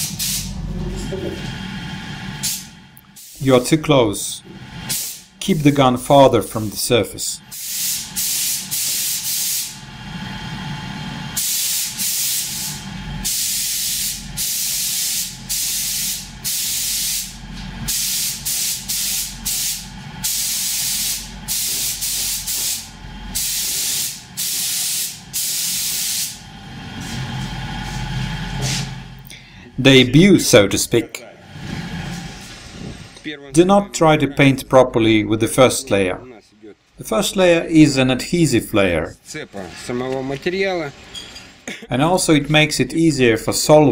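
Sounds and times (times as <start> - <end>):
spray gun hissing: 0.0 - 0.6, 2.4 - 3.4, 4.9 - 5.3, 7.5 - 9.8, 11.4 - 26.4
steady low hum: 0.0 - 40.0.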